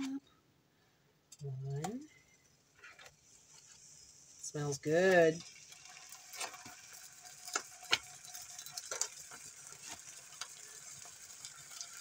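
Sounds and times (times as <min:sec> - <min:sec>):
meat sizzling in butter: 0:02.5 - 0:12.0.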